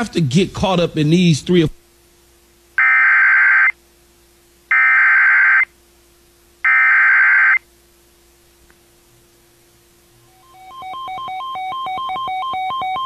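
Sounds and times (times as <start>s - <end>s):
digital data tone bursts: 2.8s - 3.8s, 6.7s - 7.6s, 10.3s - 13.0s.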